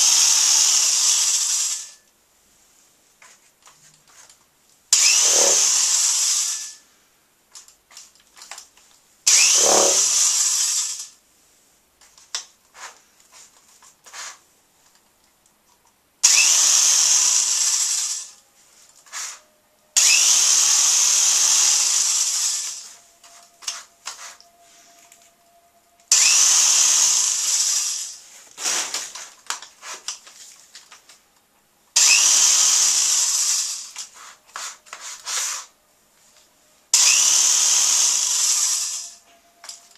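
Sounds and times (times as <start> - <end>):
power drill spinning: 0.0 - 2.1, 4.9 - 6.8, 9.3 - 11.2, 16.2 - 18.4, 19.0 - 19.4, 20.0 - 25.3, 26.1 - 30.5, 32.0 - 35.7, 37.0 - 39.9.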